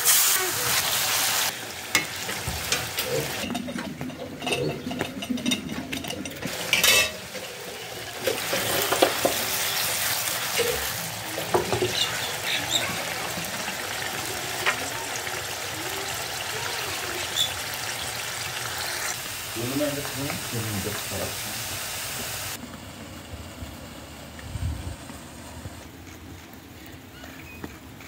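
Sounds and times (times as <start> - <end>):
mushrooms sizzling in saucepan: 0.0 - 3.5, 6.4 - 24.3
pan knocks and clinks: 3.4 - 7.2.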